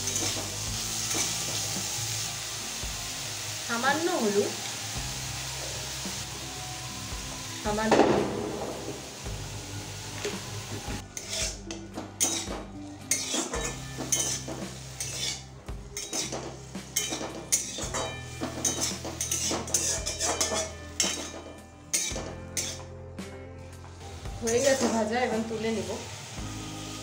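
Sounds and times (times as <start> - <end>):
metal spatula scraping a wok: 0.0 - 1.7, 11.0 - 22.9
oil sizzling: 0.0 - 27.0.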